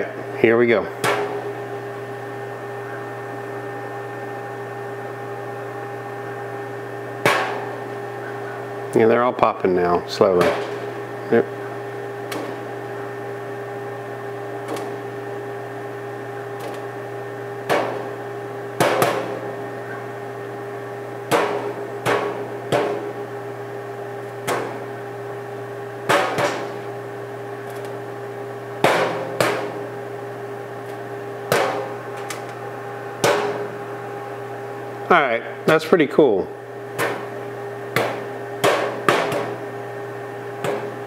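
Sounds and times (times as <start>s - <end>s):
oven fan hum: 0.0s - 41.0s
popcorn popping: 7.1s - 9.0s, 10.2s - 32.6s, 33.2s - 33.8s, 36.8s - 41.0s.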